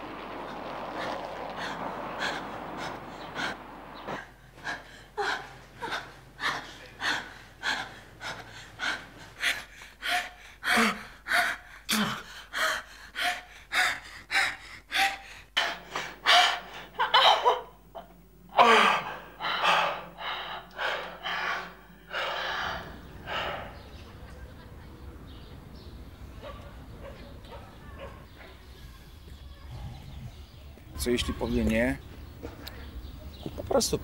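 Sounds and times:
heavy breathing and gasping: 1.5 - 17.0, 18.6 - 24.1.

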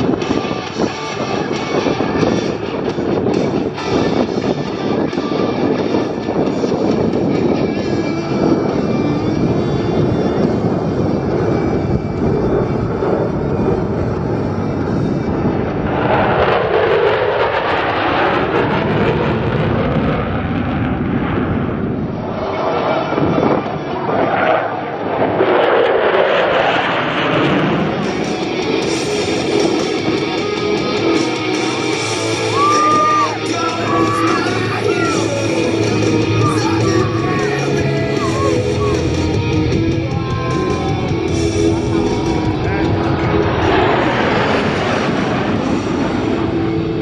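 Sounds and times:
rock music with guitar: 0.0 - 16.1, 27.1 - 47.0
jet engines flying overhead: 0.0 - 47.0.

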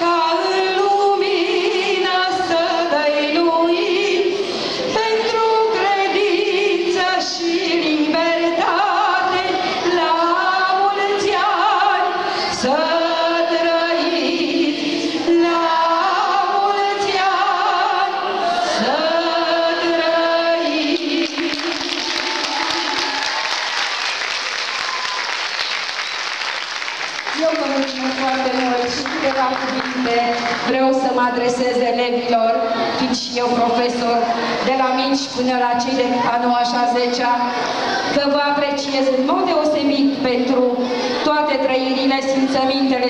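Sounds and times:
woman singing into a microphone: 0.0 - 23.1, 27.4 - 43.0
audience applauding: 21.0 - 30.8.

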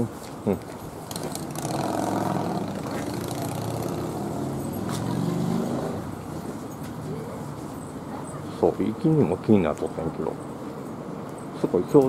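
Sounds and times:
vehicle engine passing by: 1.1 - 7.9.

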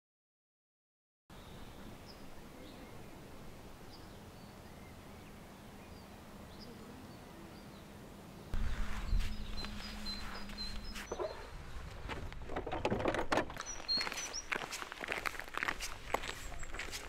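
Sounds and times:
high bird chirps: 8.6 - 11.6, 13.6 - 14.6.

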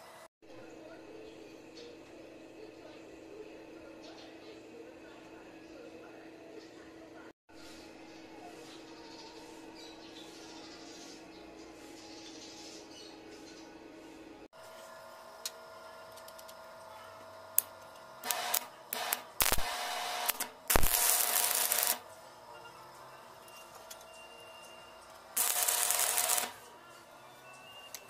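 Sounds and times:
welding arc crackling and hissing: 17.5 - 22.1, 25.2 - 26.8.

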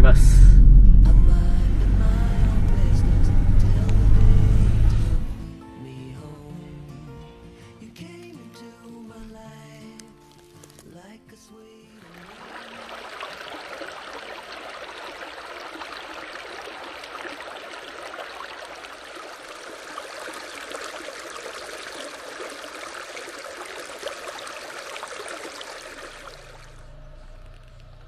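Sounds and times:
stream running over rocks: 11.9 - 28.0.

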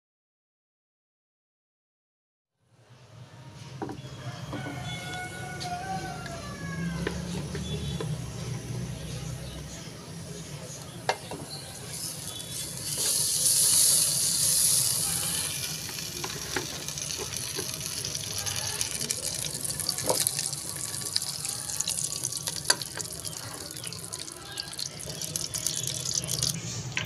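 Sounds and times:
hot oil sizzling and popping: 11.1 - 26.7.

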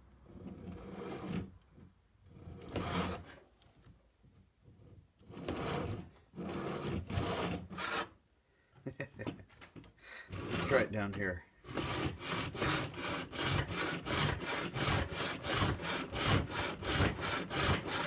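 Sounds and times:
handsaw rasping turning wood: 2.4 - 3.4, 5.2 - 8.2, 10.3 - 11.0, 11.6 - 18.0.

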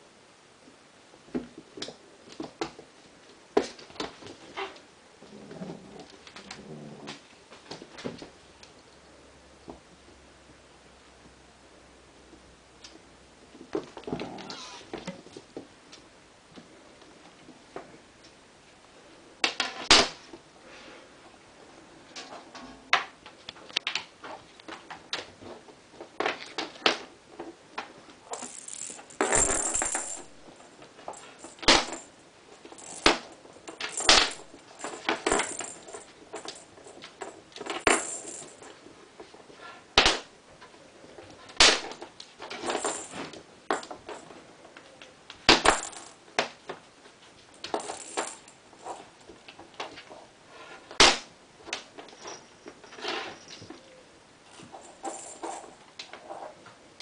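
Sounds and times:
toy and paws clattering on wooden floor: 23.5 - 39.8, 41.2 - 44.9, 47.4 - 50.2, 51.7 - 53.8, 54.5 - 56.6
rattling scuffle: 28.3 - 38.8, 42.4 - 44.3, 54.5 - 56.6.

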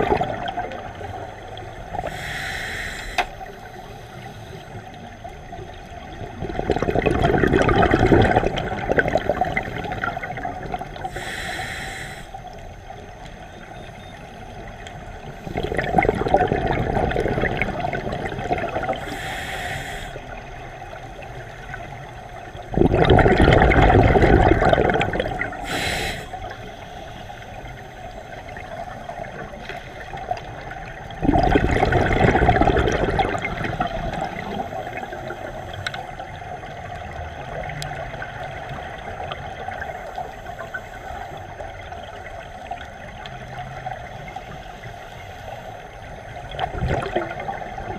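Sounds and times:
exhaled bubbles underwater: 0.0 - 47.9
regulator hiss: 1.8 - 4.9, 11.1 - 12.7, 19.0 - 21.9, 25.5 - 28.6.

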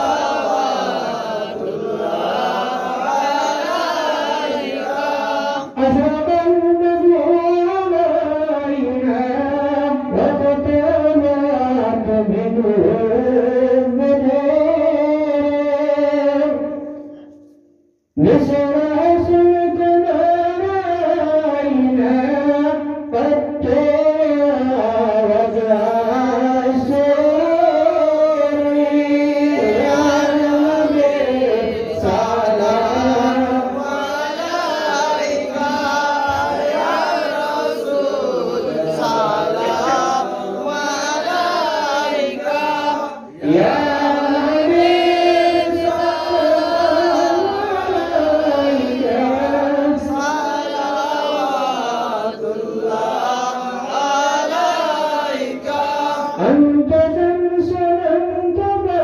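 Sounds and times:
men singing devotional chant: 0.0 - 17.4, 18.2 - 59.0.

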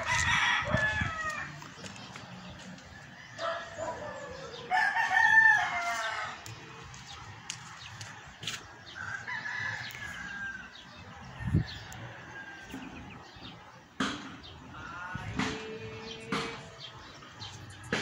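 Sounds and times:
rooster crowing: 0.0 - 1.6, 3.4 - 6.4.

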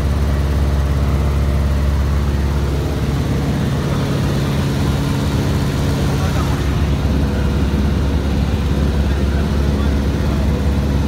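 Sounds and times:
propeller plane engine drone: 0.0 - 11.0.

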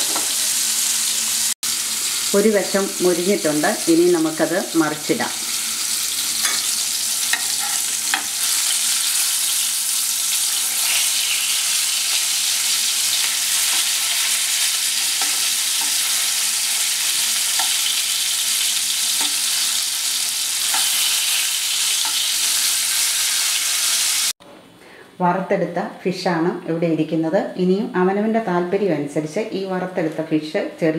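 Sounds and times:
fish sizzling in hot oil: 0.0 - 24.4
metal spatula scraping a pan: 6.4 - 9.6, 13.2 - 18.0.

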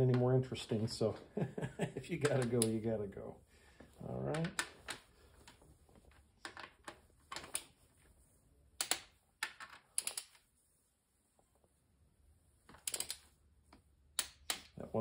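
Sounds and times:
ratcheting wrench clicking: 12.8 - 13.2.

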